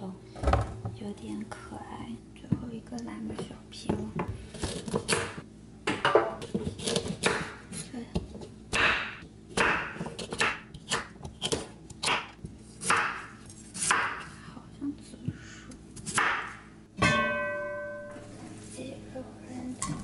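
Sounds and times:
knife cutting carrots: 6.4s - 7.8s.

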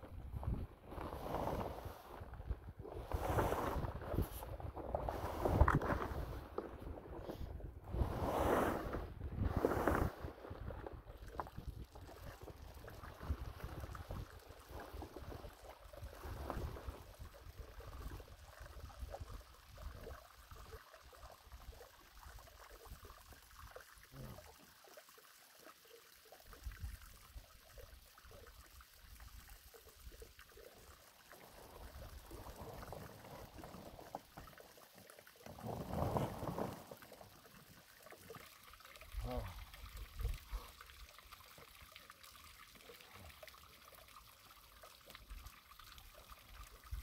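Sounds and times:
wind rumbling on microphone: 0.0s - 20.2s, 35.5s - 37.0s
plastic liner rustling and crinkling: 35.6s - 37.2s.

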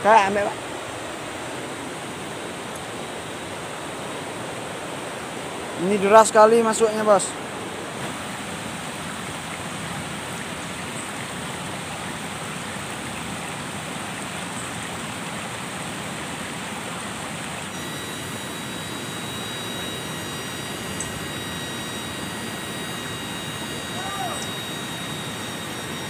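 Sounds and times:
heavy rush of water: 0.0s - 26.0s
thin high tones: 17.7s - 26.0s.

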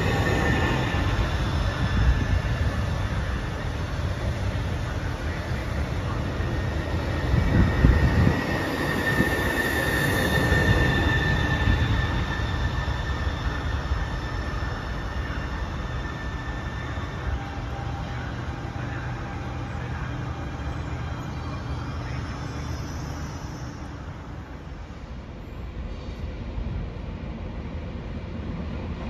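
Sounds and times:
train wheels rumbling on rail: 0.0s - 29.0s
high wheel squeal: 6.6s - 24.6s.

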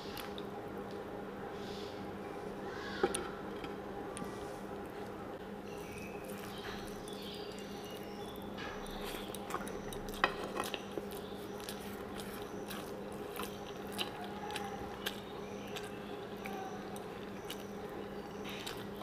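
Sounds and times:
steady low hum: 0.0s - 19.0s
chewing: 4.9s - 19.0s
fingers mixing rice on a plate: 5.8s - 19.0s.

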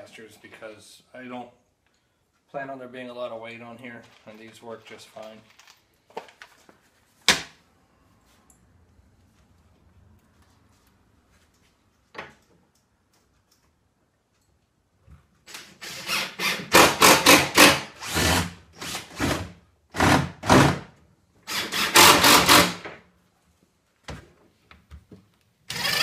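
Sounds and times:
cordless drill driving screws: 15.5s - 19.4s, 21.5s - 22.8s, 25.7s - 26.0s.

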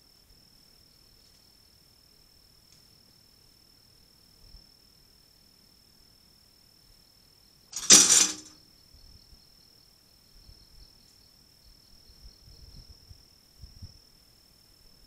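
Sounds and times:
metal trap door clanging shut: 7.8s - 8.5s.

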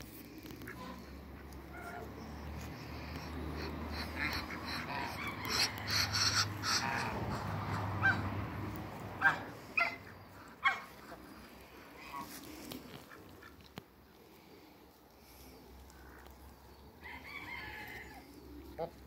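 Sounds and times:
chickens clucking and squawking: 0.6s - 14.6s, 15.2s - 19.0s
chicken loud sharp calls: 3.0s - 8.4s.

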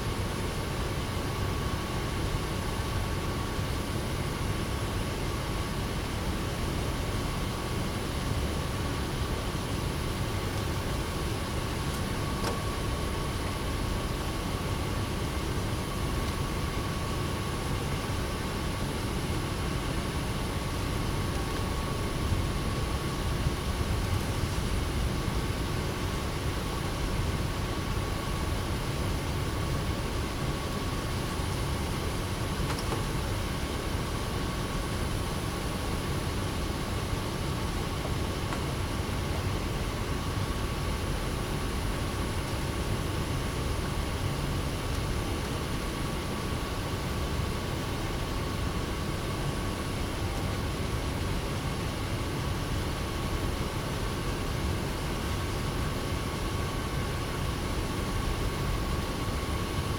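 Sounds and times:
low rumble and hiss: 0.0s - 59.9s.

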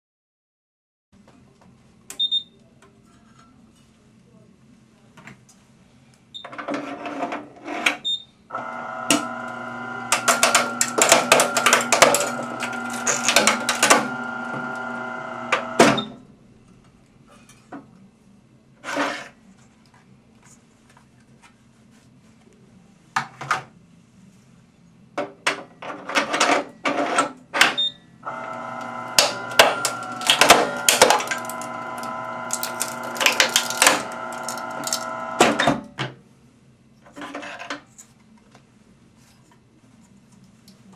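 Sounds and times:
machine humming: 8.5s - 16.0s, 28.2s - 35.7s
drives clicking and knocking: 8.7s - 15.9s
hard drive cracking and snapping: 9.0s - 14.9s, 28.8s - 35.6s.

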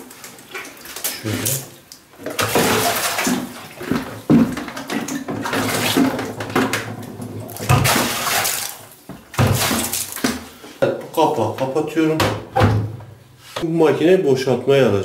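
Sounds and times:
water pouring into washing machine: 0.0s - 10.3s.

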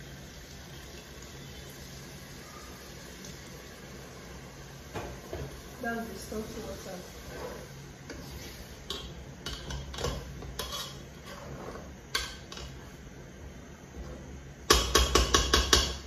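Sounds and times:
spatula stirring soup in pot: 7.2s - 12.9s
spatula knocking against pot: 14.7s - 16.0s.

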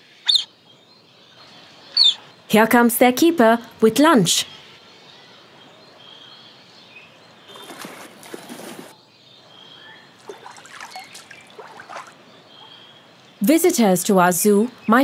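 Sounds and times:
bird calls: 0.0s - 2.4s, 4.4s - 13.4s
water splashing: 10.2s - 12.3s.

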